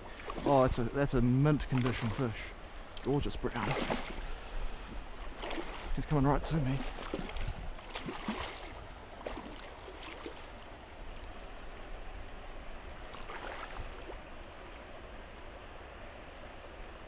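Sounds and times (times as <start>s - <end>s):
stream running over stones: 0.0s - 16.0s
fish splashing at surface: 3.6s - 4.2s, 5.4s - 6.0s, 6.8s - 10.4s.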